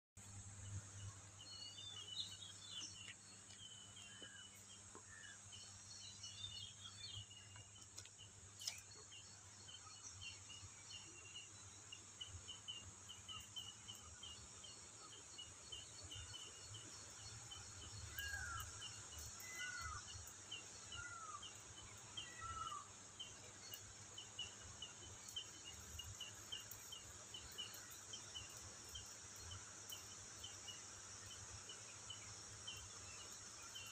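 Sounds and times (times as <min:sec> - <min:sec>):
high insect drone: 0:00.3 - 0:33.9
falling bird calls: 0:15.8 - 0:33.9.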